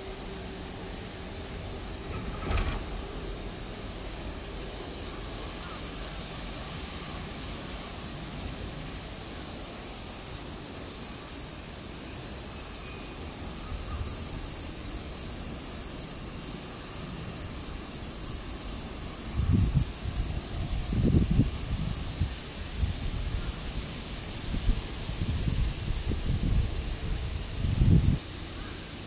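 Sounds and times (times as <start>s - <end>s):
high-pitched insect chorus: 0.0s - 29.0s
wind on microphone: 19.3s - 28.2s.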